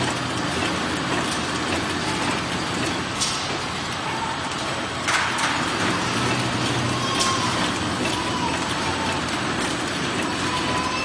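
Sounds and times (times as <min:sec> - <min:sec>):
wrapping machine running: 0:00.0 - 0:11.0.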